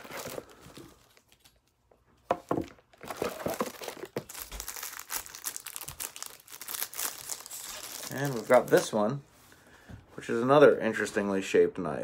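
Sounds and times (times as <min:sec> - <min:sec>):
cardboard box rustling: 0:02.6 - 0:04.8
sharp plastic crackles: 0:02.6 - 0:09.0
plastic wrapping crinkling: 0:02.7 - 0:09.2.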